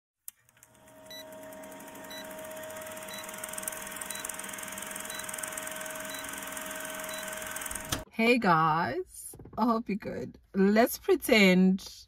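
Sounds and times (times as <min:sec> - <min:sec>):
film projector clatter and whir: 0:00.3 - 0:08.1.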